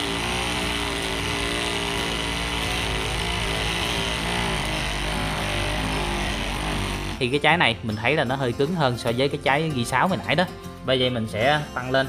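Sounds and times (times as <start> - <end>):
oscillating multi-tool cutting: 0.0 - 7.2.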